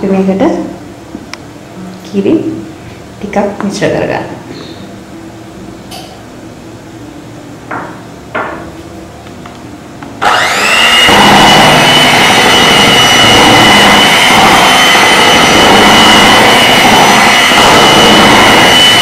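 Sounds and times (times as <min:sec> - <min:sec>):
electric mixer motor whine: 0:10.2 - 0:19.0.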